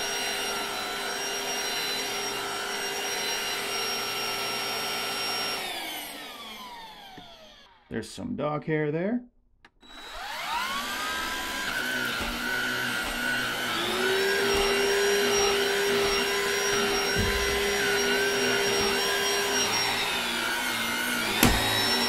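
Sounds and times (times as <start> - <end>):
vacuum cleaner motor whine: 0.0 - 7.9, 9.8 - 22.0
knock: 17.0 - 17.7.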